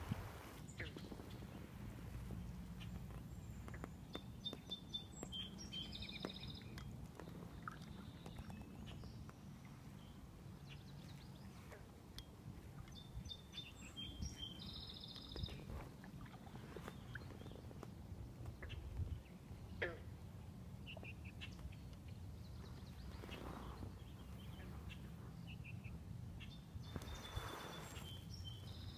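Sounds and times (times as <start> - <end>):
steady low rumble: 0.0 - 4.7
faint clicks: 2.8 - 5.4
songbird singing with buzzy trill: 3.3 - 6.9, 12.2 - 15.8, 20.8 - 28.9.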